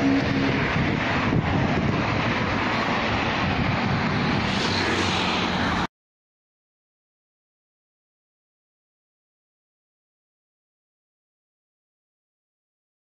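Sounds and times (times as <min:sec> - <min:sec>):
road traffic noise: 0:00.0 - 0:05.9
wind buffeting microphone: 0:00.0 - 0:05.9.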